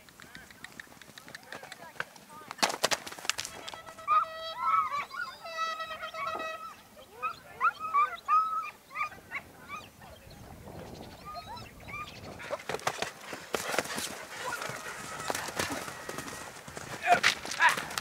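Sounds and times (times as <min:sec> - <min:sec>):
horse hoofbeats: 0:00.0 - 0:04.8, 0:12.0 - 0:18.0
hounds yelping: 0:03.6 - 0:10.2, 0:11.2 - 0:12.7, 0:13.6 - 0:16.6.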